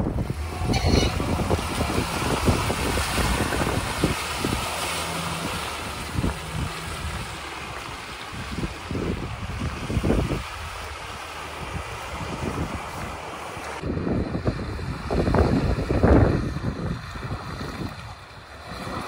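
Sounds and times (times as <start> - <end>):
car engine under load: 0.0 - 19.0
tyres splashing through water: 0.0 - 19.0
wind buffeting microphone: 0.0 - 19.0.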